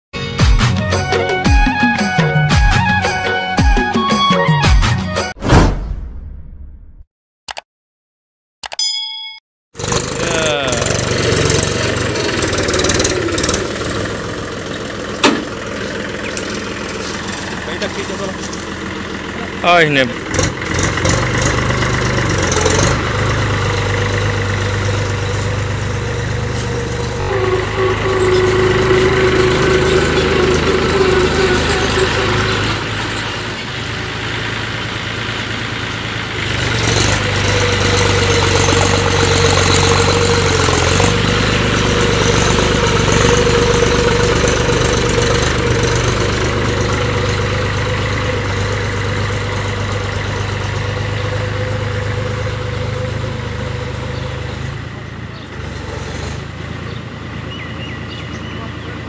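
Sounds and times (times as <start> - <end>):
tractor diesel engine under load: 9.8 - 59.0.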